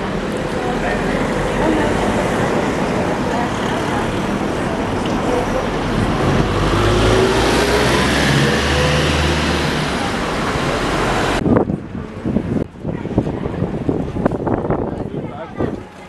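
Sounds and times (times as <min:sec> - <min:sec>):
bus engine hum and whine: 0:00.0 - 0:12.8
street traffic noise: 0:00.0 - 0:16.0.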